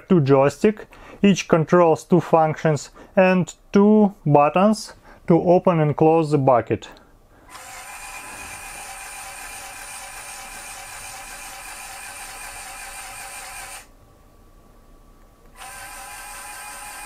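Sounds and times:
toy motors whirring: 0:07.5 - 0:13.9, 0:15.6 - 0:17.0.

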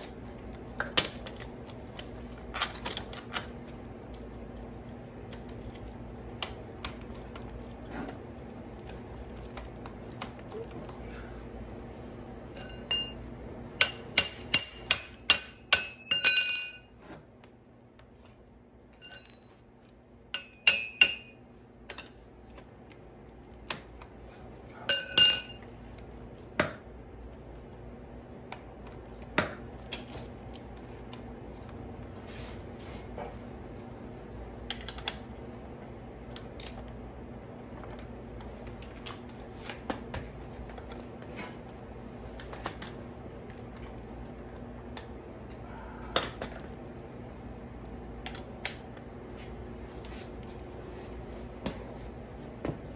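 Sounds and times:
steel parts clinking and clanking: 0:00.1 - 0:04.3, 0:12.5 - 0:13.2, 0:13.8 - 0:17.1, 0:18.3 - 0:19.6, 0:20.3 - 0:22.2, 0:24.8 - 0:25.8.

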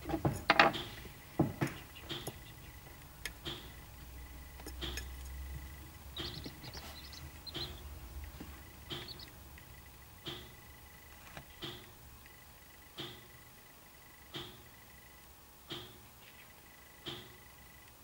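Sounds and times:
bird chicks peeping: 0:00.6 - 0:17.8
sharp taps and clicks: 0:03.2 - 0:03.8, 0:04.6 - 0:06.8, 0:07.5 - 0:10.6.

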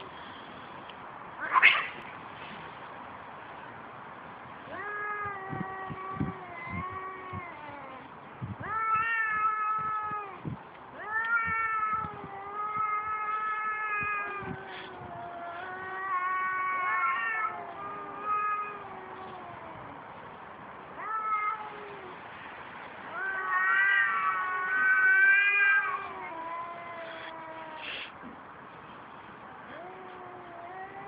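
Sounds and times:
cats yowling: 0:01.4 - 0:02.0, 0:04.7 - 0:10.4, 0:11.0 - 0:20.0, 0:21.0 - 0:22.2, 0:23.1 - 0:28.1, 0:29.7 - 0:31.0.

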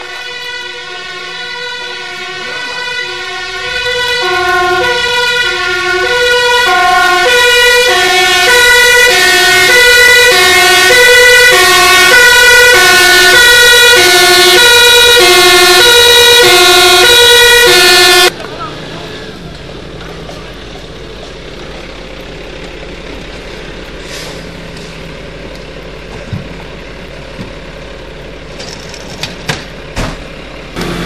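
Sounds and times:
fire engine two-tone siren: 0:00.0 - 0:18.4.

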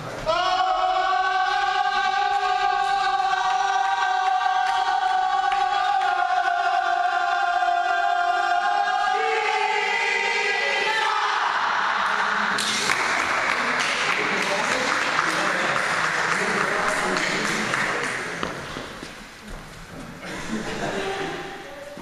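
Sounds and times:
choir singing long notes: 0:00.3 - 0:12.8
cheering or applause: 0:02.3 - 0:06.6, 0:11.9 - 0:18.4.

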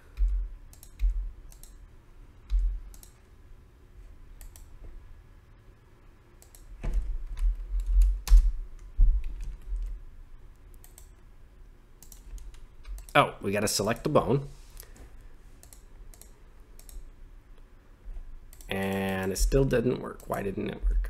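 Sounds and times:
keyboard typing: 0:00.1 - 0:01.8, 0:02.5 - 0:03.2, 0:06.4 - 0:10.0, 0:12.0 - 0:13.2, 0:15.6 - 0:17.0
mouse clicking: 0:00.2 - 0:01.8, 0:02.5 - 0:03.2, 0:04.4 - 0:04.7, 0:06.4 - 0:06.7, 0:10.7 - 0:11.1, 0:12.0 - 0:13.2, 0:15.6 - 0:17.0, 0:18.5 - 0:19.4
dull low thumps: 0:08.0 - 0:09.9.

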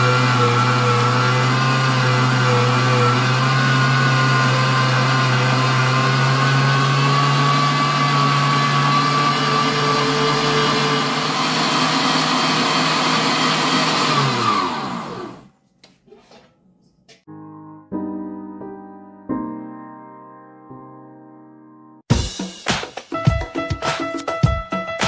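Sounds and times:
electric meat grinder running: 0:00.0 - 0:15.5
piano music: 0:17.3 - 0:22.1.

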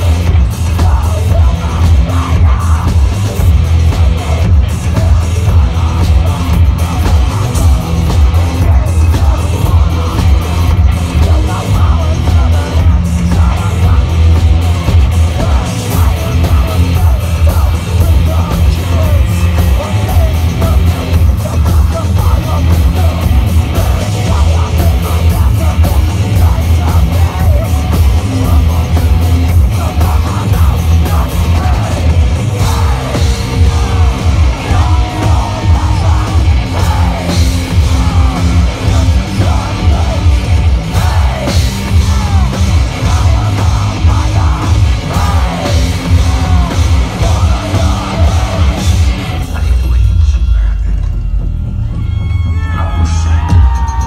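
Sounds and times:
heavy metal band playing: 0:00.0 - 0:54.0
vocalist singing and yelling: 0:00.0 - 0:54.0.

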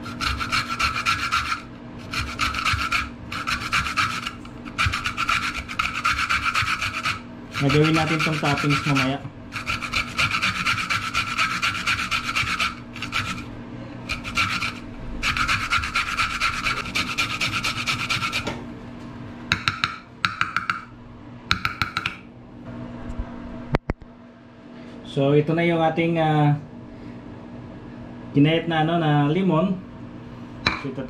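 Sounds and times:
lemon scraping on metal grater: 0:00.0 - 0:18.5.

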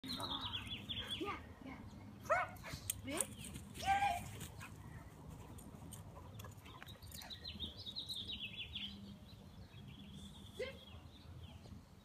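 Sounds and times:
songbird chirping: 0:00.0 - 0:12.0.

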